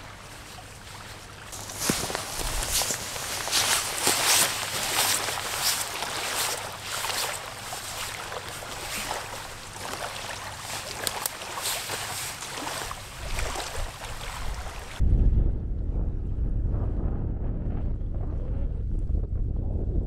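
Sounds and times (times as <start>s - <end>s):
small crackles: 0.0s - 15.0s
water lapping: 0.0s - 15.0s
wind hiss: 0.0s - 15.0s
wind buffeting microphone: 1.1s - 20.0s.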